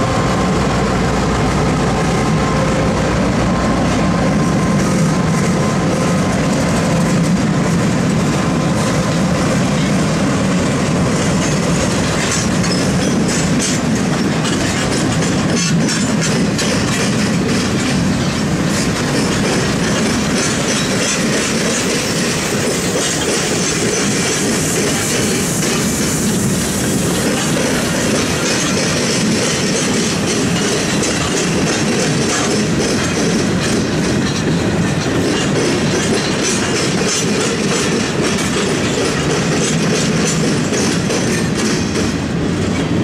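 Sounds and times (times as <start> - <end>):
train wheels clacking over rail joints: 0.0 - 43.0.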